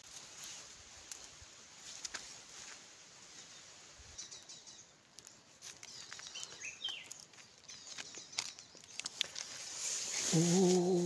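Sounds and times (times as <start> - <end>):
rustling and clicks of sticks: 0.0 - 11.0
bird chirp: 3.3 - 11.0.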